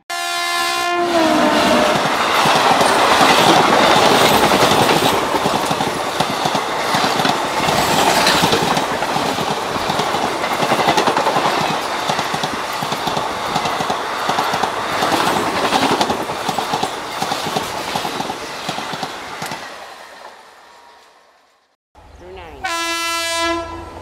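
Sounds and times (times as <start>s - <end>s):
train wheels clattering over rail joints: 2.0s - 19.7s.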